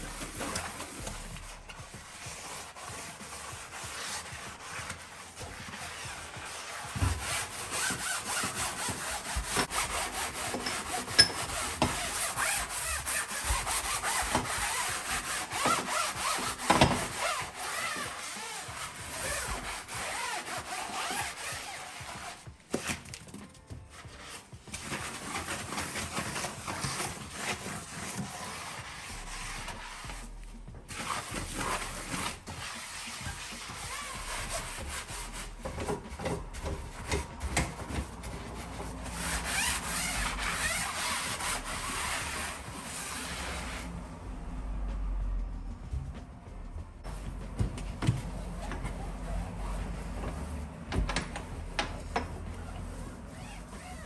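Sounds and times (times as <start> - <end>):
sponge scrubbing metal hob: 0.0 - 22.4, 24.2 - 30.3, 30.9 - 44.0.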